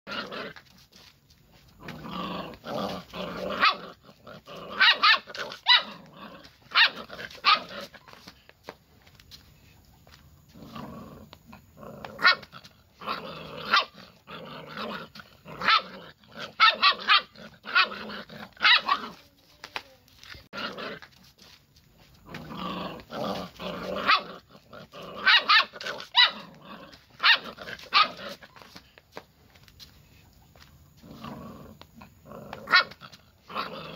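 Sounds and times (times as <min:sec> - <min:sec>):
puppy barking and growling: 0:00.1 - 0:00.8, 0:01.6 - 0:08.2, 0:10.5 - 0:19.3, 0:20.4 - 0:21.2, 0:22.2 - 0:28.7, 0:31.0 - 0:33.9.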